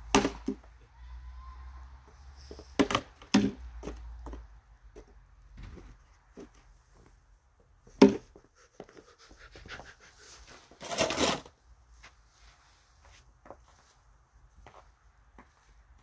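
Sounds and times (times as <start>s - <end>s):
scraping and rubbing noises: 8.2s - 14.0s.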